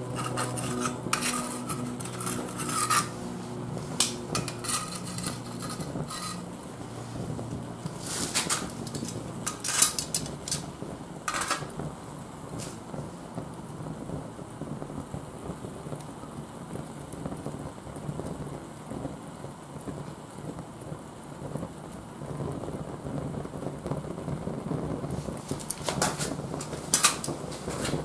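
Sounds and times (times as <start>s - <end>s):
charcoal popping and cracking: 0.0s - 12.9s, 23.4s - 28.0s
fire rushing: 0.0s - 28.0s.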